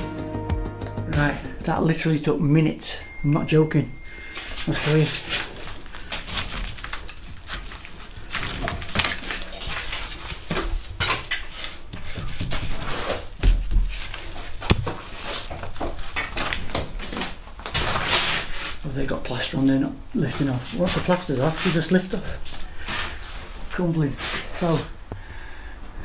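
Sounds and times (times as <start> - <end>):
brick fragments scraping and clattering: 4.4 - 18.6.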